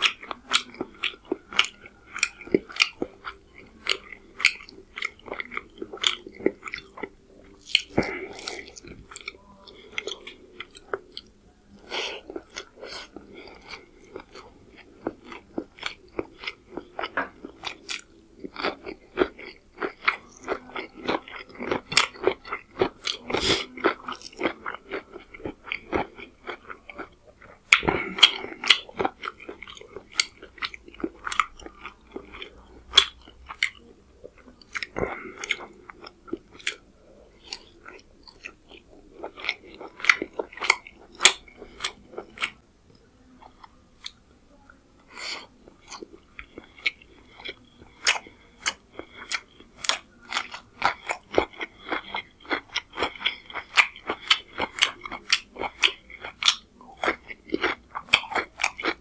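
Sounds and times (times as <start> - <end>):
wet chewing and smacking: 0.0 - 44.2, 45.6 - 59.0.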